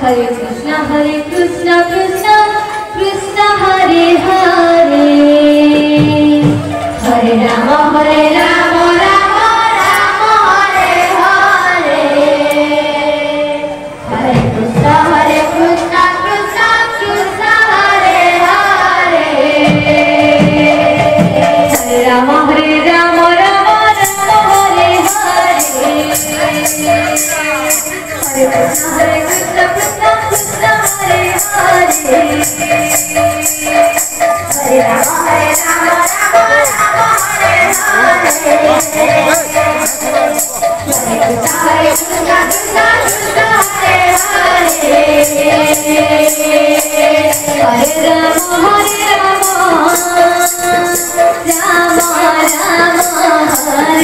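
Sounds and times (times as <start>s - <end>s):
steady held instrumental tone: 0.0s - 54.0s
women singing devotional song: 0.0s - 54.0s
drum beat: 23.3s - 54.0s
hand cymbals clashing: 23.6s - 54.0s.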